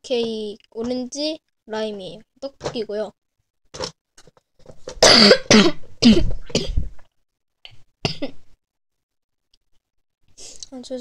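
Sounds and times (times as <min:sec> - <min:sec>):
woman coughing: 0:05.0 - 0:06.8, 0:08.0 - 0:08.4.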